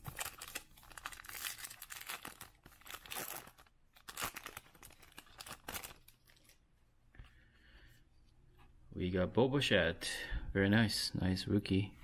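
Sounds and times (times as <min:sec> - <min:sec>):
foil wrapper tearing and crinkling: 0:00.0 - 0:06.6.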